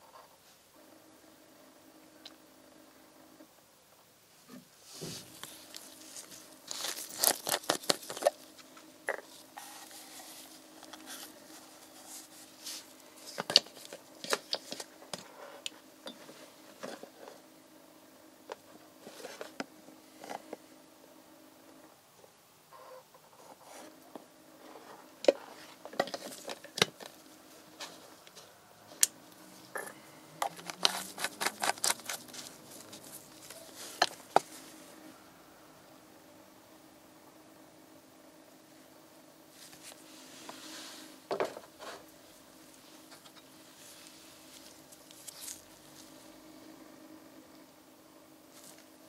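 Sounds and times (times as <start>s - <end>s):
faint steady hum: 0.0s - 49.0s
gloved hands rubbing plastic bottle: 4.8s - 15.6s, 30.4s - 34.8s, 42.7s - 46.2s.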